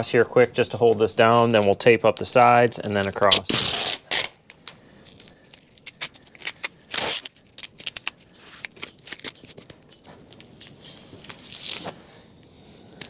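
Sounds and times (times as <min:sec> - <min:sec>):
tape crackling and rustling: 0:00.9 - 0:12.2
tape ripping: 0:03.0 - 0:12.0.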